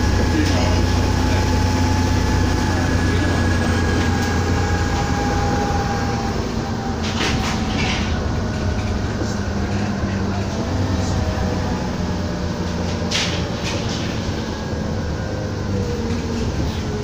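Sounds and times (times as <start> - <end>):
bus engine drone and road rumble: 0.0 - 17.0.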